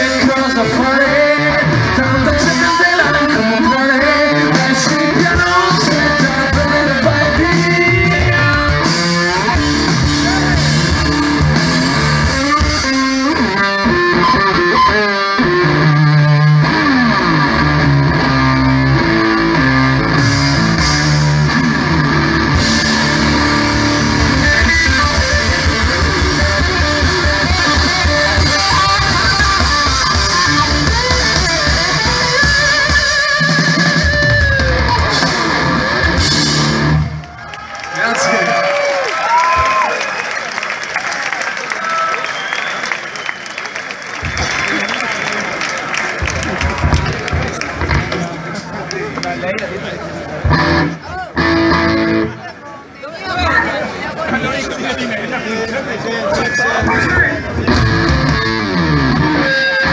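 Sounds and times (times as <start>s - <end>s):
blues rock band playing: 0.0s - 37.4s, 44.1s - 52.6s, 56.3s - 59.9s
electric guitar: 0.0s - 37.5s, 46.1s - 52.7s, 56.3s - 59.9s.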